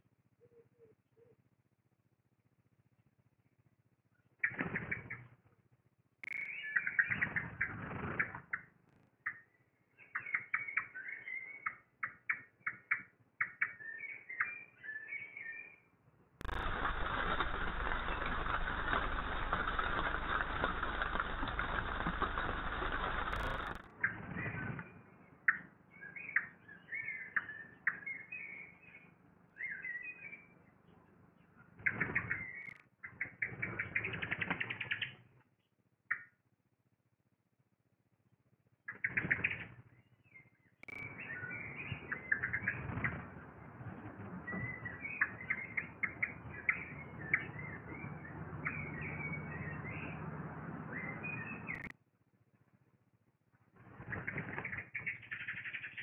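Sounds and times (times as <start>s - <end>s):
rustling and wing flutters: 4.4s - 5.4s, 7.0s - 8.7s, 16.4s - 24.8s, 40.9s - 48.8s, 53.8s - 56.0s
low steady hum: 16.4s - 23.8s
nestlings cheeping: 16.4s - 23.8s.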